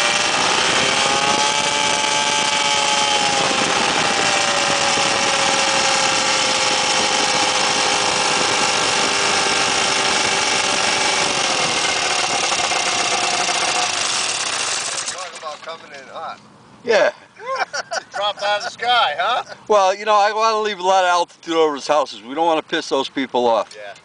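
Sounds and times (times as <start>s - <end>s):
ultralight engine buzzing: 0.0s - 15.9s.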